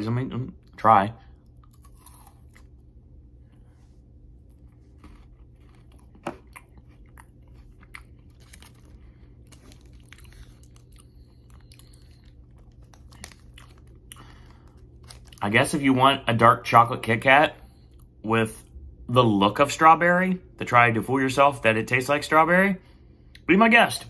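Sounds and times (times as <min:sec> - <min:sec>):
steady low hum: 0:00.0 - 0:24.0
person chewing crisp wafer: 0:01.3 - 0:15.5.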